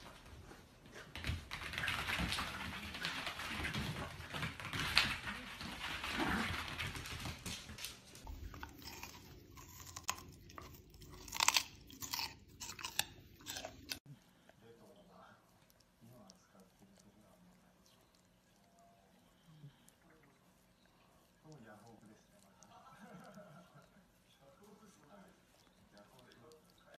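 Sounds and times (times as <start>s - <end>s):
dogs scuffling and scrabbling: 0.0s - 8.4s
crunchy chewing noises: 0.1s - 26.9s.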